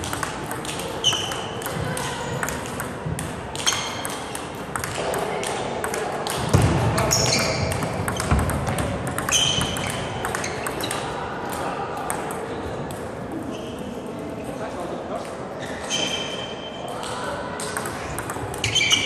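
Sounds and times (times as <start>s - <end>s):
table tennis ball clicks: 0.0s - 6.6s, 7.2s - 11.1s, 17.6s - 19.0s.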